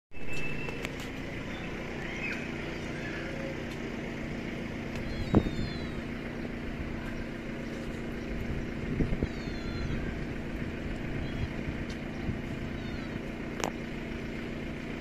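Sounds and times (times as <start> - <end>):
faint high chirps: 0.1 - 3.8, 5.0 - 7.9
engine-like hum: 0.1 - 15.0
traffic rumble: 0.1 - 15.0.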